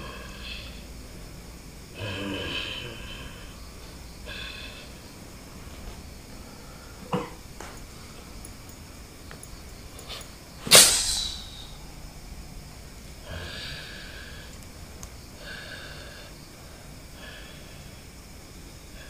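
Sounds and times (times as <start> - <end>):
hissing breaths: 0.0 - 19.0
person snorting: 2.0 - 3.6, 4.2 - 5.0, 13.2 - 14.5.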